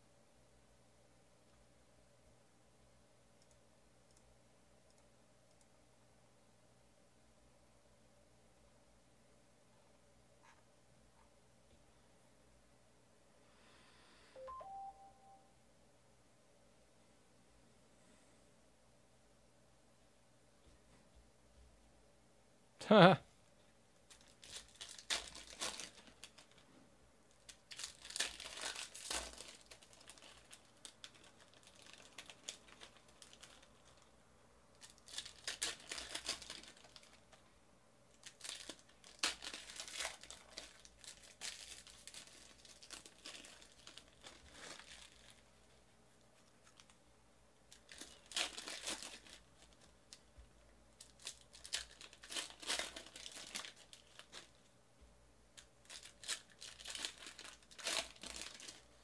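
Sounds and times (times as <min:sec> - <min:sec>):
plastic wrappers tearing and crinkling: 0:24.0 - 0:26.6, 0:27.3 - 0:34.1, 0:34.7 - 0:37.4, 0:38.1 - 0:45.7, 0:46.4 - 0:47.0, 0:47.7 - 0:50.3, 0:51.0 - 0:54.7, 0:55.6 - 0:59.0.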